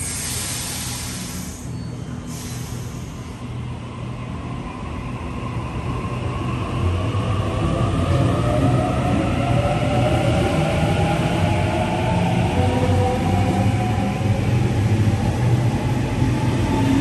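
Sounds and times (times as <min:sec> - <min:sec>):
hiss: 0:00.0 - 0:03.4.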